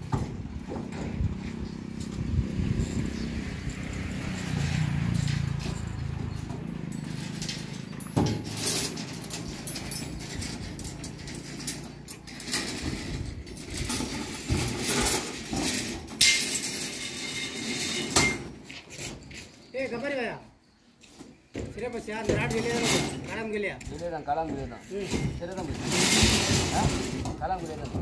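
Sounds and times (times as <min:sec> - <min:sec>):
steel bars clinking and knocking: 0:03.6 - 0:19.2.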